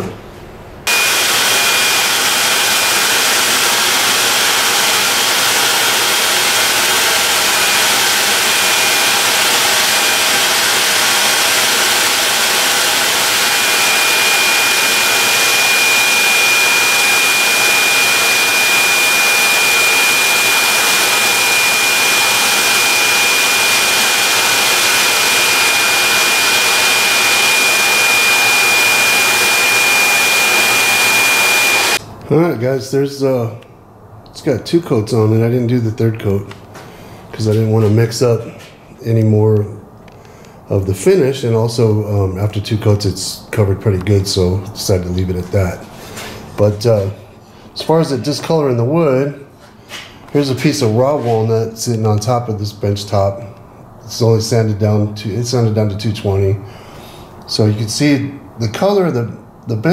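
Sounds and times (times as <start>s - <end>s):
spray gun air rush: 0.9s - 32.0s
thin high whine: 0.9s - 32.0s.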